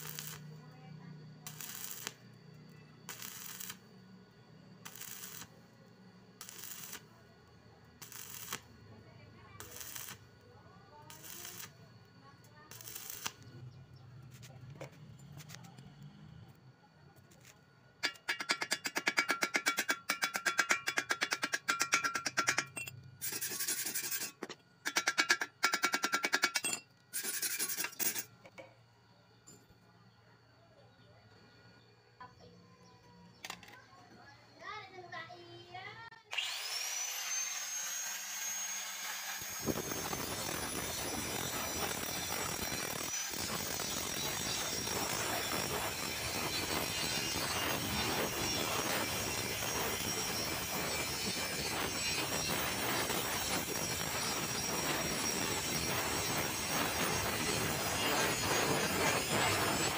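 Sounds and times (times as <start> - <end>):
welding arc crackling: 0.0 - 0.6, 1.2 - 4.1, 4.8 - 5.7, 6.3 - 7.2, 7.9 - 10.4, 11.0 - 14.8, 17.4 - 26.6, 37.2 - 59.9
hammer tapping metal: 18.0 - 26.8
harsh scrubbing on metal: 18.0 - 28.4, 39.5 - 59.9.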